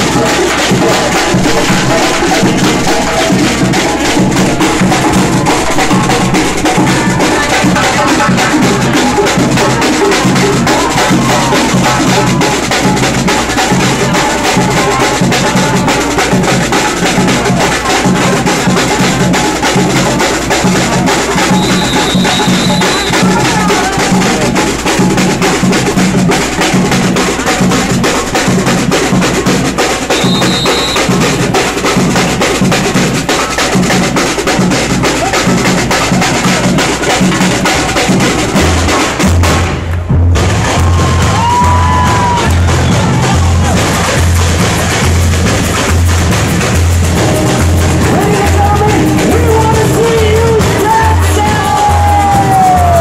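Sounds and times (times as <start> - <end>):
samba street drumming: 0.0 - 53.0
short high whistle note: 21.5 - 23.2, 30.1 - 31.1.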